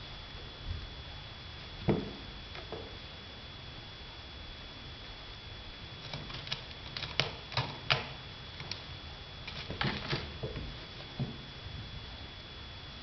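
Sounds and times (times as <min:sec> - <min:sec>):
cat claws scratching on sisal: 0:06.0 - 0:08.8.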